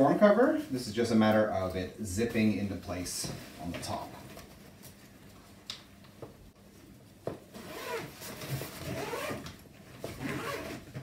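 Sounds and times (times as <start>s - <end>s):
zipper rasping: 7.6s - 9.5s, 10.1s - 11.0s.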